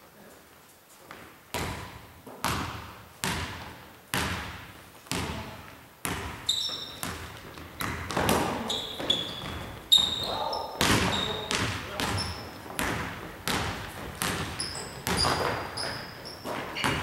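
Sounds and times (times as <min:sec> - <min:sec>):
basketball bouncing on wooden floor: 0:01.1 - 0:17.0
sneaker squeak: 0:06.3 - 0:12.9, 0:13.5 - 0:17.0.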